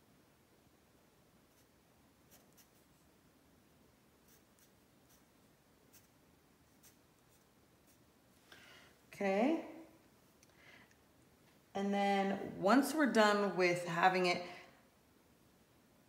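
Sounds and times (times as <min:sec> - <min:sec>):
pencil scratching on paper: 0:01.5 - 0:03.0, 0:04.2 - 0:05.3, 0:05.9 - 0:08.1.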